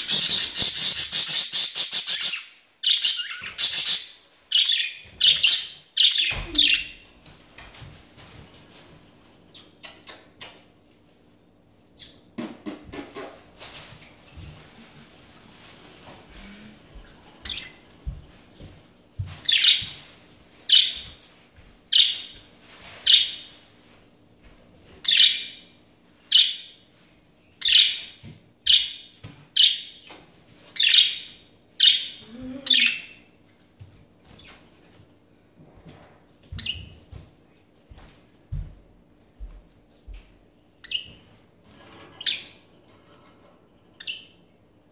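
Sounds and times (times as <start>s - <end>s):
budgerigars chirping: 0.0s - 6.9s.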